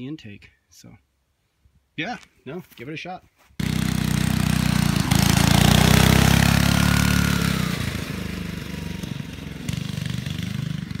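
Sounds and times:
go-kart engine passing by: 0:03.6 - 0:11.0.

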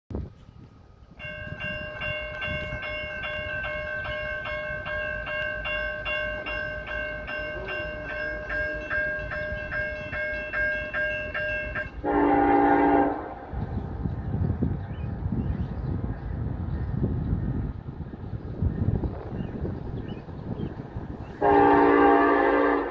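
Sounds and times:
crossing warning bell ringing: 0:01.1 - 0:13.6, 0:19.6 - 0:22.9
locomotive air horn blast: 0:12.0 - 0:13.6, 0:21.4 - 0:22.9.

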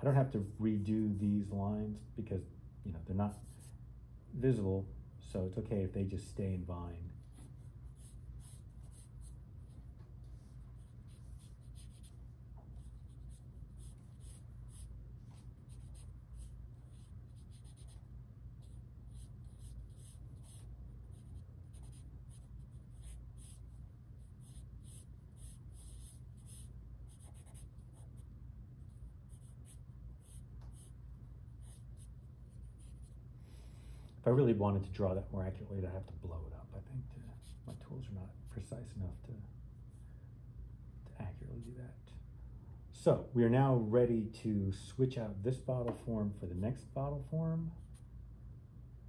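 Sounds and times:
steady low hum: 0:00.0 - 0:49.0
pencil scratching on paper: 0:07.2 - 0:33.2, 0:37.3 - 0:37.8.

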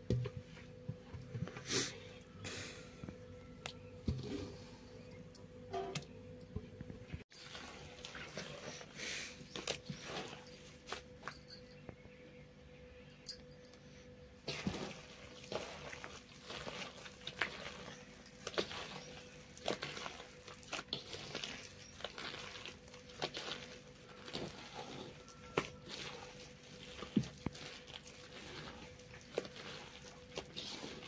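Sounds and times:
batter slapping and squelching: 0:07.3 - 0:11.3, 0:14.4 - 0:31.0.

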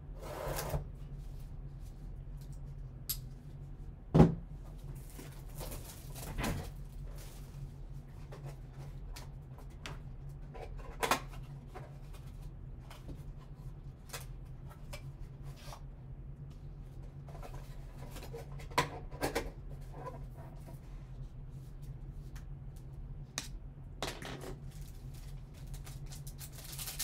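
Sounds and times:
steady low hum: 0:00.0 - 0:27.0
card packs clattering: 0:24.3 - 0:27.0.

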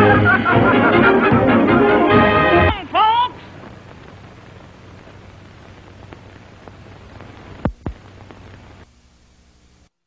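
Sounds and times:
faint low hum: 0:00.0 - 0:10.0
film soundtrack hiss and crackle: 0:00.0 - 0:10.0
clicks and loud pops: 0:03.6 - 0:08.9.

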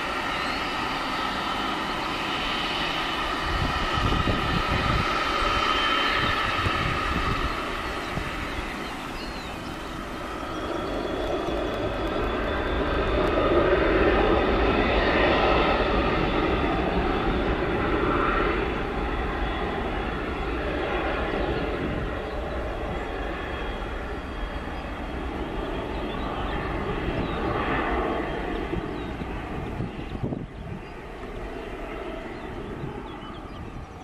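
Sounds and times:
jet engines at takeoff power: 0:00.0 - 0:34.0.

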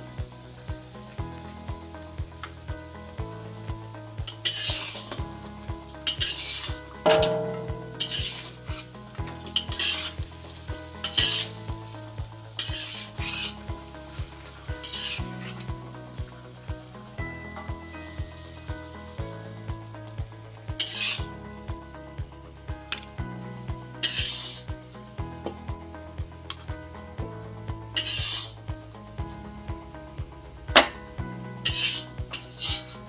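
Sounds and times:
meat sizzling: 0:00.0 - 0:33.0
spatula scraping a wok: 0:04.3 - 0:05.2, 0:06.0 - 0:19.2, 0:20.8 - 0:21.2, 0:24.0 - 0:24.7, 0:28.0 - 0:28.6, 0:31.6 - 0:33.0.

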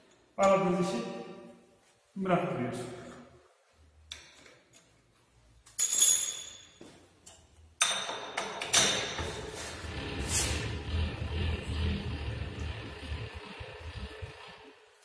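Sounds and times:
metal clinks and clanks: 0:05.7 - 0:06.8.

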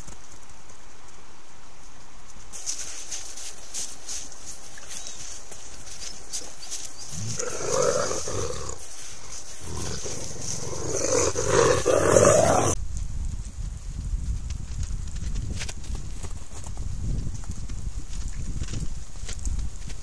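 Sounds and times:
wolves growling: 0:07.0 - 0:12.8.

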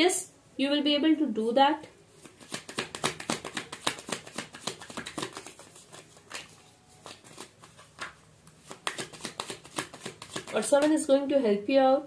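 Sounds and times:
cards being shuffled: 0:02.2 - 0:11.1.

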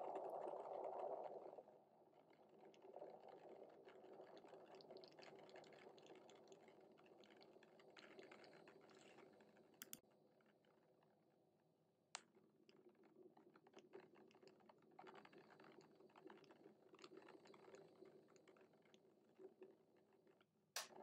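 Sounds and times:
light ticks: 0:09.8 - 0:10.0.

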